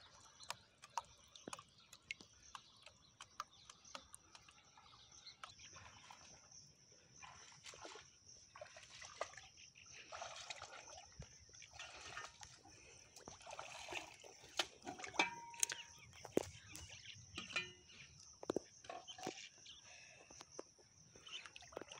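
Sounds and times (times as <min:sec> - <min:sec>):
wading through shallow water: 0:00.0 - 0:21.9.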